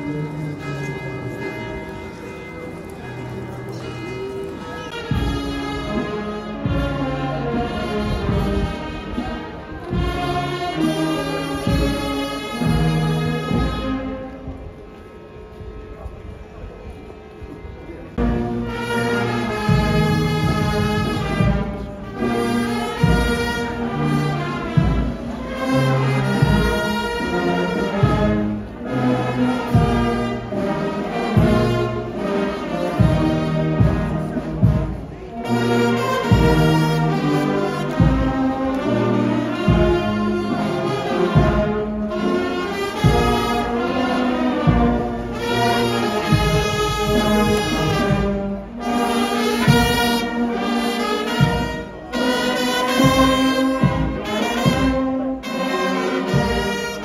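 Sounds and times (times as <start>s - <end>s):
brass band playing a march: 0.0s - 15.6s, 18.1s - 57.0s
drum beats: 5.0s - 10.9s, 18.2s - 27.2s, 32.9s - 57.0s.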